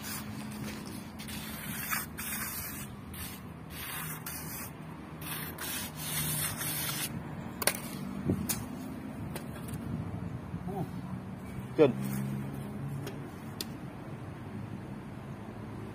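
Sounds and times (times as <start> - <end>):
steel trowel scraping wet screed: 0.0 - 7.1.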